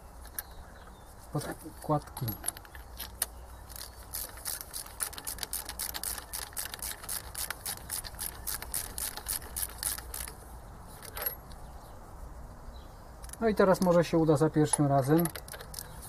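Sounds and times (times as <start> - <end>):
metallic clicking of injector fittings: 2.0 - 10.4, 14.6 - 16.0.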